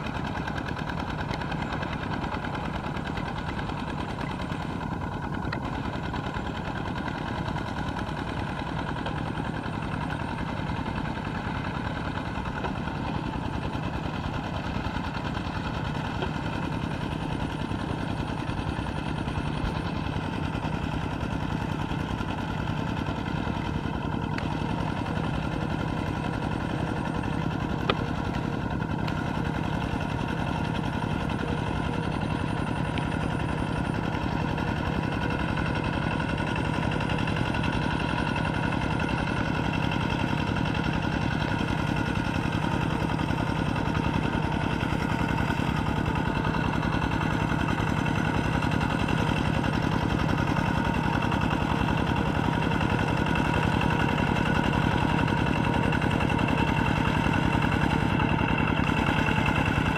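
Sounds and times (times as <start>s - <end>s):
walking tractor diesel engine: 0.0s - 59.9s.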